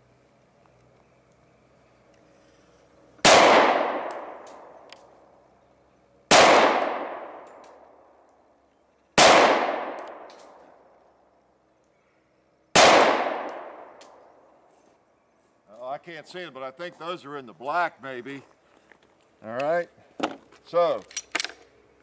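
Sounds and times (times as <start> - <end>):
pistol shots echoing: 3.2 - 4.8, 6.3 - 7.6, 9.2 - 10.6, 12.7 - 14.1.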